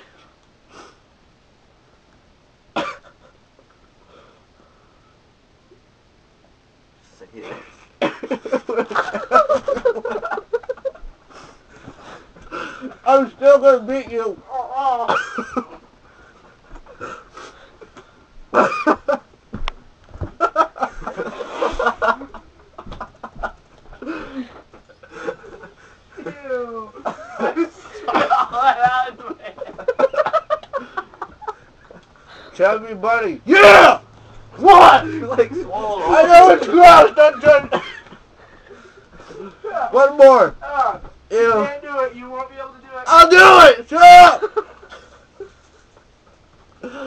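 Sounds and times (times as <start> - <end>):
muffled cough: 2.8 - 3.3.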